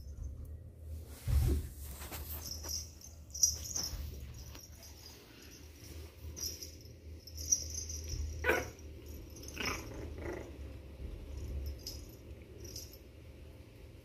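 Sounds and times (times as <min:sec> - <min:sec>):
low steady hum: 0:00.0 - 0:14.0
puppy barking: 0:08.4 - 0:08.8.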